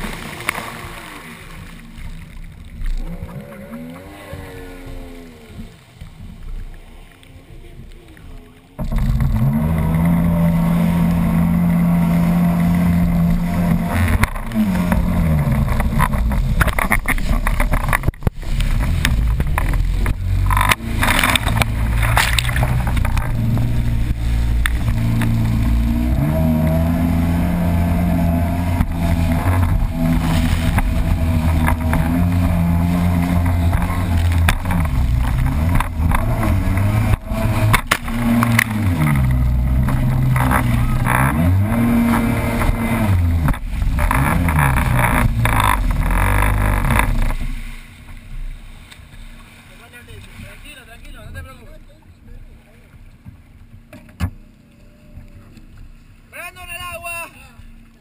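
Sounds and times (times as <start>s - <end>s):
jet ski engine revving: 0.0s - 6.0s, 6.6s - 48.7s.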